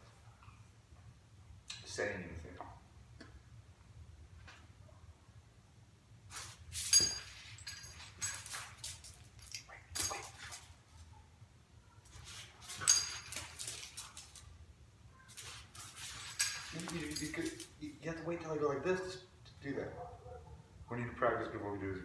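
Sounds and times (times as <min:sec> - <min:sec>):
dog paws on concrete: 0:06.3 - 0:11.1, 0:12.0 - 0:14.6, 0:15.2 - 0:18.6
dog collar tags jingling: 0:06.7 - 0:10.7, 0:12.6 - 0:14.5, 0:16.0 - 0:17.9.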